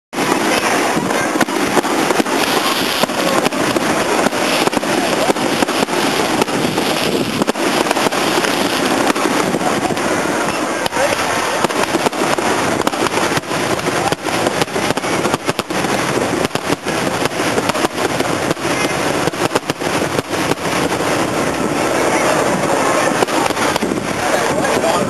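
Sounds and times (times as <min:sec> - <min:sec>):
fireworks bangs and cracks: 0:00.1 - 0:25.0
fireworks crackling: 0:00.1 - 0:25.0.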